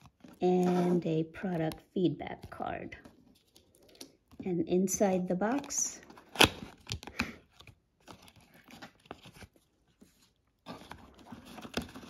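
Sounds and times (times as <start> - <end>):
cardboard and paper rustling: 0.0 - 4.4, 5.4 - 12.0
cardboard tearing snap: 5.5 - 7.4.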